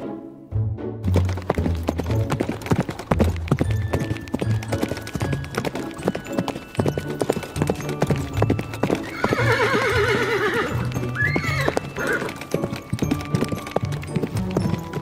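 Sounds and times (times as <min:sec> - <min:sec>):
background music: 0:00.0 - 0:15.0
clip-clop hoofbeats: 0:01.0 - 0:15.0
horse whinny: 0:09.0 - 0:12.5.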